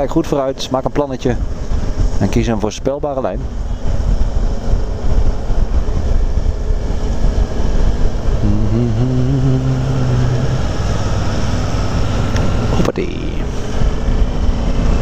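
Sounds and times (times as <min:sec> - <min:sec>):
wind rumble: 0:00.0 - 0:15.0
motorcycle engine: 0:06.0 - 0:12.8.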